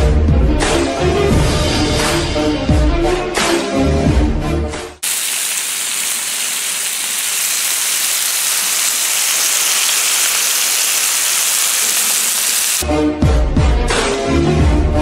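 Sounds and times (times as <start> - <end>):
bacon sizzling on a griddle: 5.0 - 12.8.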